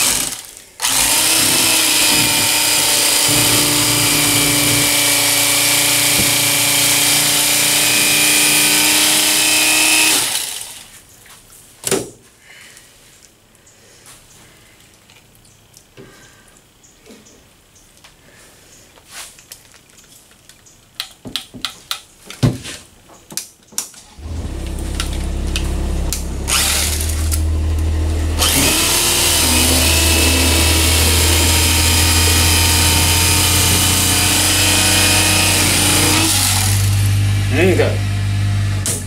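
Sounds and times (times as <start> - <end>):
electric fillet knife motor: 0.0 - 10.8, 24.2 - 38.9
sharp clicks and knocks: 0.9 - 5.0, 19.9 - 24.0.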